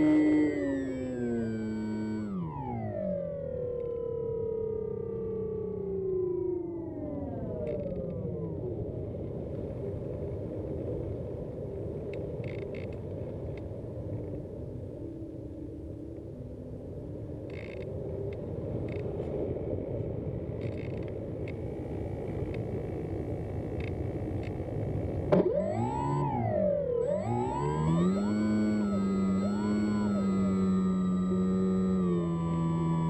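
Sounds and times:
faint motor hum: 0.0s - 33.0s
faint clicks: 12.0s - 13.7s, 17.4s - 19.4s, 20.6s - 21.6s, 23.7s - 25.8s.

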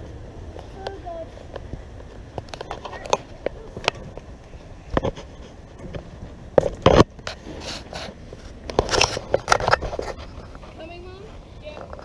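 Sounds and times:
knocks and scuffs of climbing: 0.0s - 12.0s.

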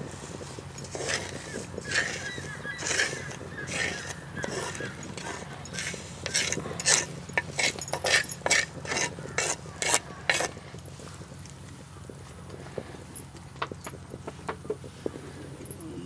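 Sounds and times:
wooden spatula scraping pan: 0.0s - 10.6s.

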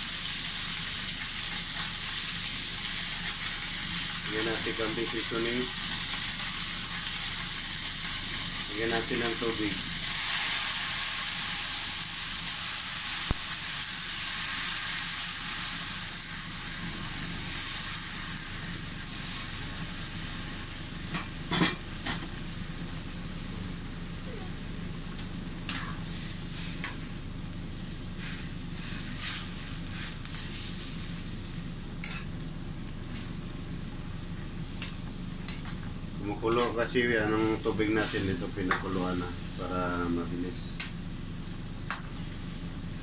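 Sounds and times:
water sizzling in hot oil: 0.0s - 33.6s, 34.2s - 43.0s.

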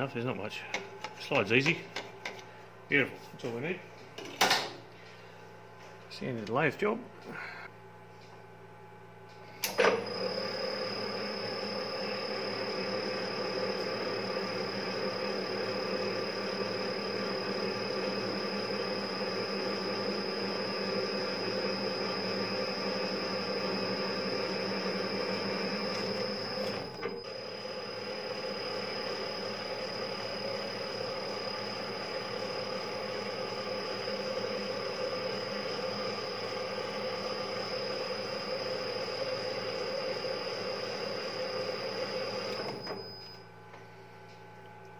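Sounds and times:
lathe running with high whine: 9.7s - 43.0s.

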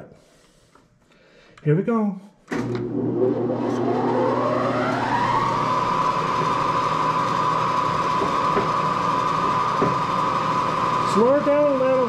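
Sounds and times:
machine spindle whine: 2.6s - 12.0s.

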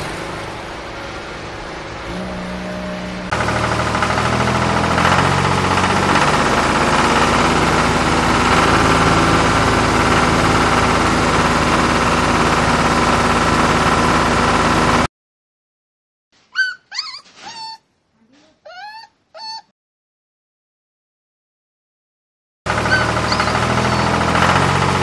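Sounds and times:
tractor engine knocking idle: 3.3s - 15.1s, 22.7s - 25.0s.

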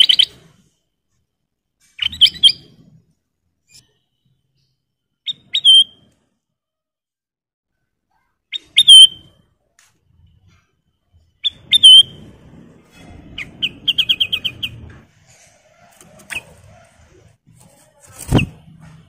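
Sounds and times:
bird chirps: 0.0s - 0.5s, 1.8s - 3.0s, 3.6s - 6.2s, 8.2s - 9.5s, 11.1s - 12.3s, 12.9s - 17.2s
bulbul singing whistled phrases: 3.7s - 6.0s, 8.5s - 9.3s.

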